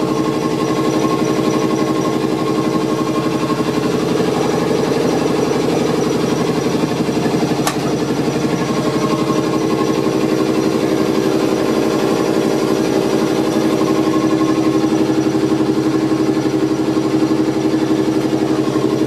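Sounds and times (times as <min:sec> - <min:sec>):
train machinery humming with pulse: 0:00.8 - 0:11.3
sharp click: 0:07.6 - 0:08.0.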